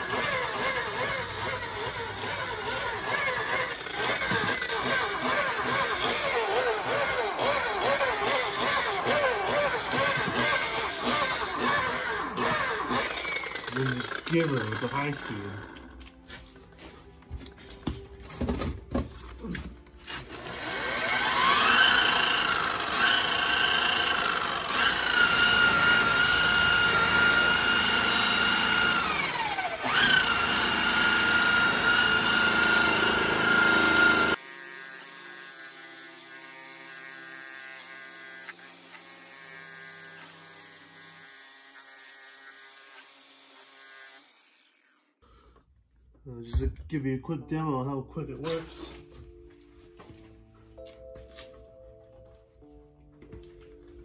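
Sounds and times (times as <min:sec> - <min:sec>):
rotary polisher motor whine: 0:00.0 - 0:15.9, 0:20.3 - 0:43.0.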